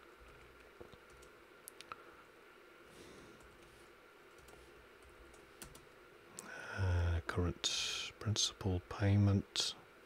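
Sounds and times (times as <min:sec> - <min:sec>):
room hiss: 0:00.0 - 0:10.0
man talking: 0:06.4 - 0:09.8.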